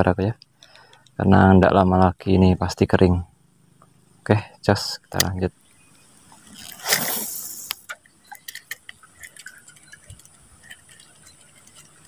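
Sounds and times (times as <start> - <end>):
faint ticks and water drips: 0.0 - 1.3, 3.3 - 4.4, 7.6 - 12.0
fishing line hissing off reel: 6.2 - 8.0.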